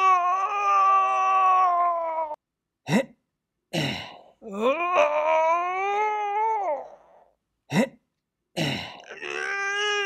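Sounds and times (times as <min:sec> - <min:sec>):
whiny cartoon voice cry: 0:09.1 - 0:10.0.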